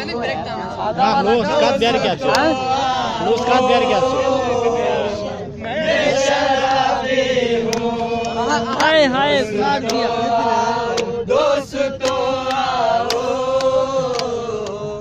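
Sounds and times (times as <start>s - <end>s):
men singing unaccompanied: 0.0s - 15.0s.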